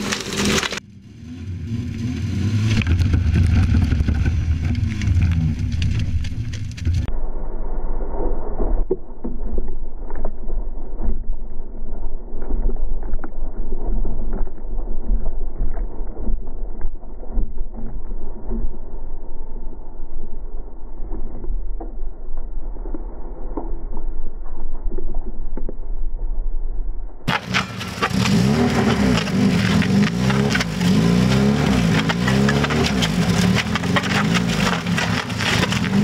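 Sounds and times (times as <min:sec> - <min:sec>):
car drivetrain running: 0:00.0 - 0:07.1, 0:27.3 - 0:36.0
log wheel rumbling on asphalt: 0:00.0 - 0:07.1, 0:27.3 - 0:36.0.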